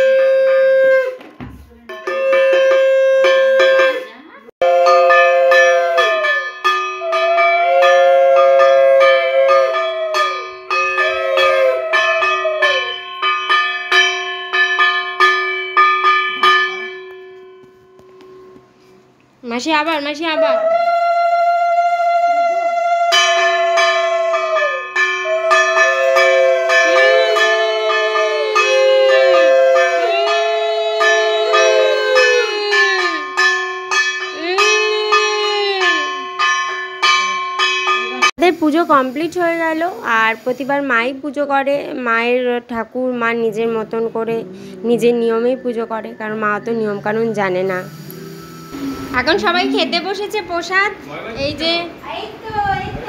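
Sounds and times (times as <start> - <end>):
conch shell blown: 0.0 - 1.3, 2.0 - 14.6, 20.7 - 37.1, 47.7 - 50.4
brass hand bell ringing: 1.9 - 19.0, 23.1 - 38.6, 44.6 - 50.6
sustained pitch-bending tones: 43.5 - 51.0.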